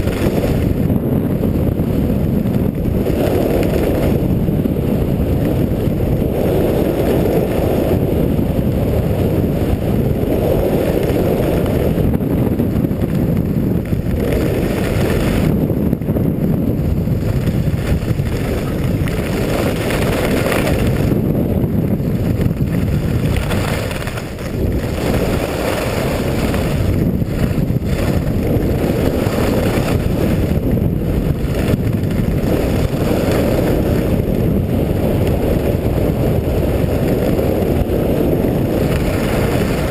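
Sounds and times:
skis scraping on packed snow: 0:00.0 - 0:00.9, 0:12.8 - 0:15.8, 0:16.7 - 0:39.9
wind buffeting microphone: 0:00.0 - 0:39.9.

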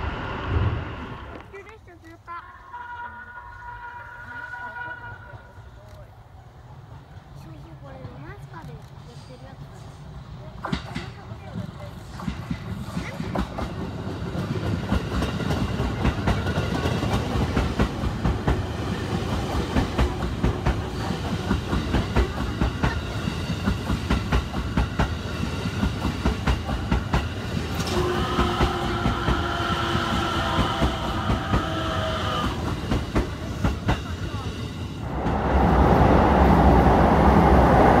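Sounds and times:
train wheels clacking over rail joints: 0:10.6 - 0:34.7.

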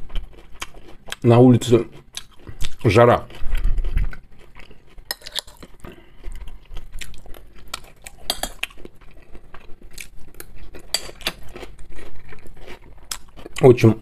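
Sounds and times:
chewing: 0:00.0 - 0:13.9
metal spoon scraping a plate: 0:05.1 - 0:05.7, 0:08.2 - 0:08.6, 0:10.9 - 0:11.4.

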